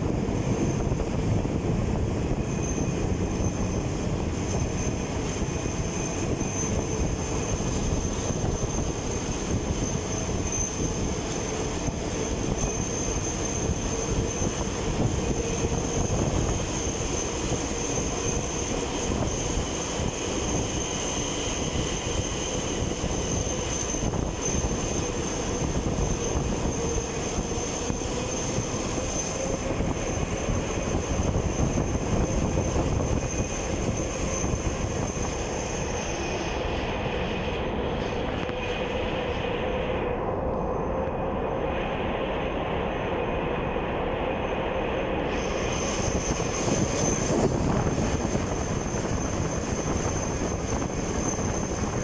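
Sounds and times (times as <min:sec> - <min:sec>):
train passing close by: 0:00.0 - 0:52.0
wheels rumbling on rail: 0:00.0 - 0:52.0.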